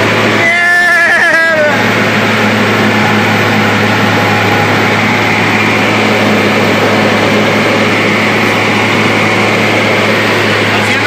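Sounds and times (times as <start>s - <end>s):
truck engine running: 0.0s - 11.0s.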